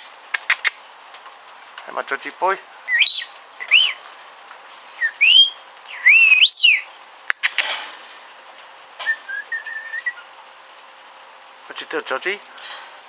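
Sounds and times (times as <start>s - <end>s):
harsh bird squawk: 2.9s - 4.0s, 5.0s - 7.0s
lorikeet whistling: 2.9s - 4.0s, 5.0s - 7.0s, 9.0s - 10.3s.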